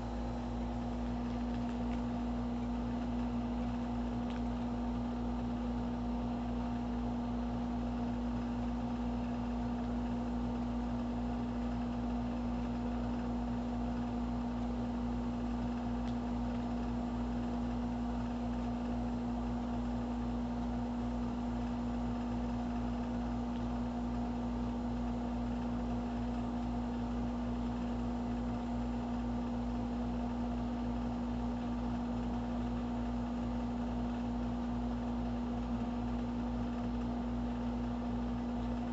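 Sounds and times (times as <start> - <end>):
steady low hum: 0.0 - 38.9.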